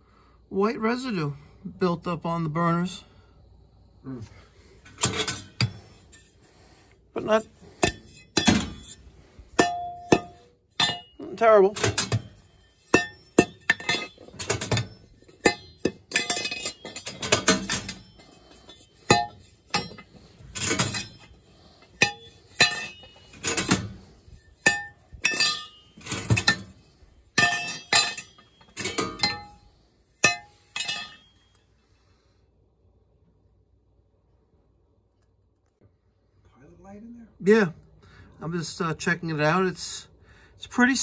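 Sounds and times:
metallic clinks and taps: 0:11.8 - 0:26.7.

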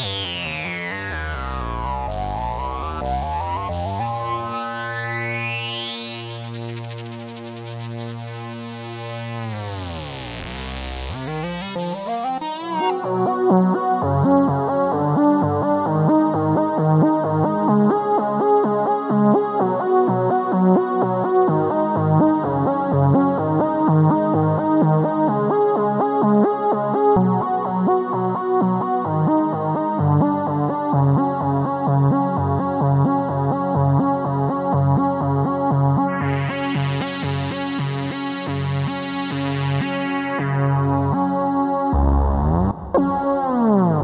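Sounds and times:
sawtooth synth lead notes: 0:00.0 - 0:14.4, 0:36.0 - 0:44.0.

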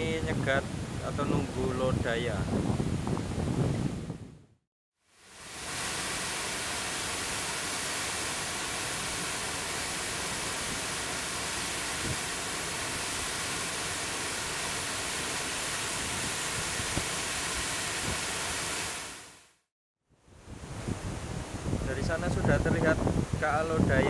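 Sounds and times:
water rushing over weir: 0:05.1 - 0:19.4.

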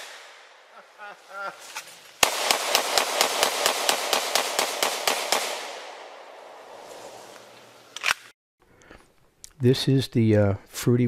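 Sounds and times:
rapid gunfire: 0:02.2 - 0:06.1.

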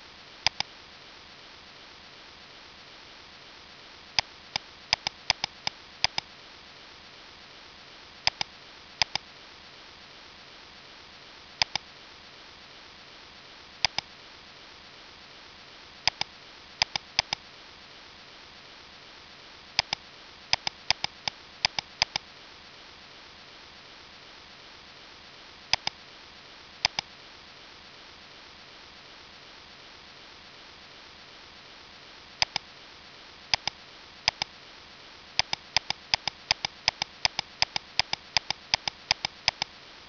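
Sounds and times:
faint hiss: 0:00.0 - 0:40.0
computer mouse clicks: 0:00.4 - 0:00.7, 0:04.2 - 0:06.3, 0:08.3 - 0:09.2, 0:11.6 - 0:11.8, 0:13.8 - 0:14.1, 0:16.1 - 0:17.4, 0:19.8 - 0:22.3, 0:25.7 - 0:26.0, 0:26.8 - 0:27.1, 0:32.4 - 0:32.7, 0:33.5 - 0:34.5, 0:35.4 - 0:39.8
keyboard clicks: 0:00.5 - 0:00.7, 0:04.9 - 0:06.3, 0:08.3 - 0:09.2, 0:11.6 - 0:11.8, 0:13.8 - 0:14.1, 0:16.1 - 0:17.4, 0:19.8 - 0:22.2, 0:25.7 - 0:26.0, 0:26.8 - 0:27.1, 0:32.4 - 0:32.7, 0:33.5 - 0:34.5, 0:35.4 - 0:39.7.

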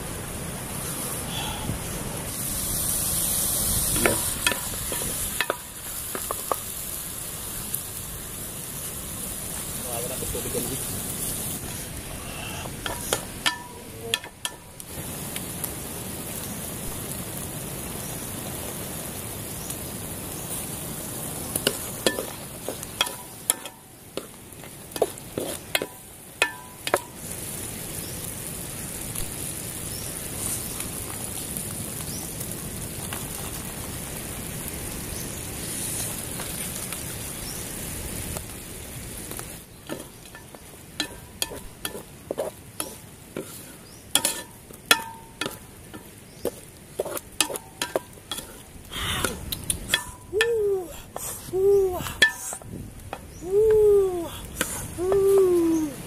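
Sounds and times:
food sizzling in a pot: 0:00.0 - 0:56.0
wooden spoon scraping a pot: 0:25.0 - 0:25.9, 0:39.9 - 0:48.7.

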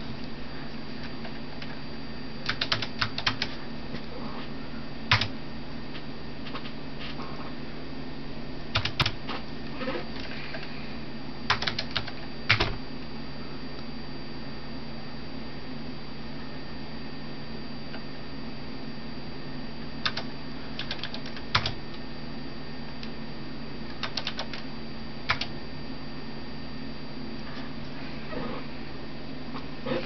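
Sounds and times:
steady low hum: 0:00.0 - 0:30.0
computer keyboard keystrokes: 0:02.5 - 0:03.6, 0:05.1 - 0:05.3, 0:08.7 - 0:09.2, 0:11.5 - 0:12.8, 0:20.0 - 0:21.8, 0:23.9 - 0:24.6, 0:25.3 - 0:25.5.

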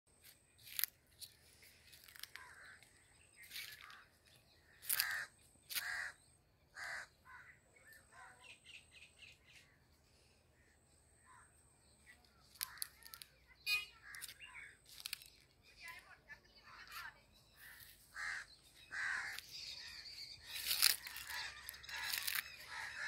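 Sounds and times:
crows cawing: 0:01.9 - 0:08.5, 0:12.5 - 0:13.2, 0:14.0 - 0:15.1, 0:17.6 - 0:23.0.

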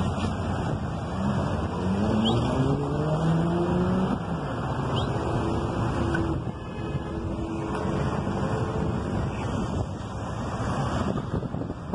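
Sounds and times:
traffic noise: 0:00.0 - 0:11.9
wind: 0:00.0 - 0:11.9
vehicle engine speeding up: 0:01.0 - 0:06.4.

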